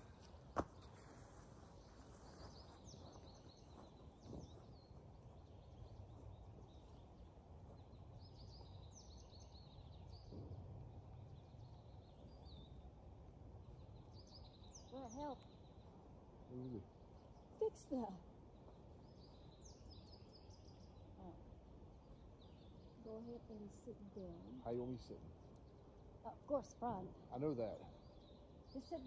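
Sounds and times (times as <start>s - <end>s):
bird chirps: 0.0s - 13.0s, 13.6s - 29.0s
wind rumble on microphone: 2.5s - 12.8s.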